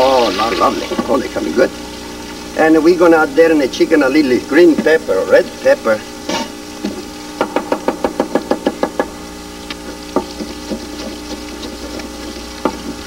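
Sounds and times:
knife chopping on wooden board: 10.1s - 12.0s.

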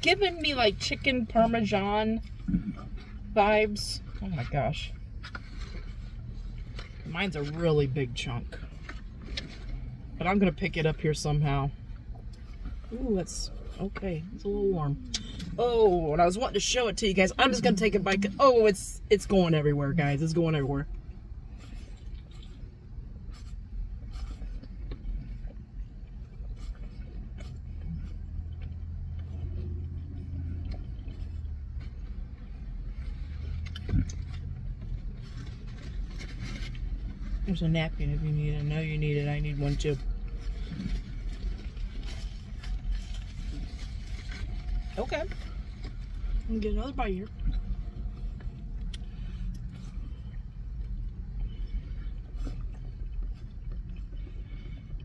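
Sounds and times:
car interior rumble: 0.0s - 55.0s
people chewing: 2.2s - 3.3s, 21.5s - 37.4s, 47.3s - 55.0s.

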